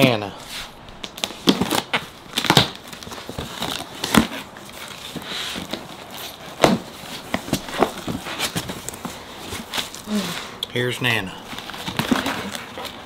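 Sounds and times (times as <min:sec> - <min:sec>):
tape peeling off cardboard: 0:00.6 - 0:10.6
cardboard knocks and rustles: 0:06.6 - 0:10.0.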